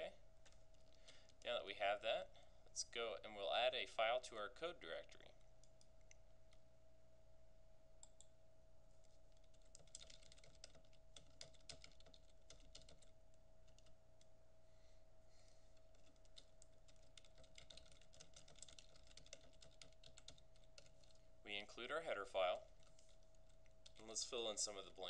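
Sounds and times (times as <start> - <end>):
faint steady hum: 0.0 - 25.0
typing on computer keyboard: 9.3 - 13.9, 15.8 - 21.2, 22.7 - 24.2.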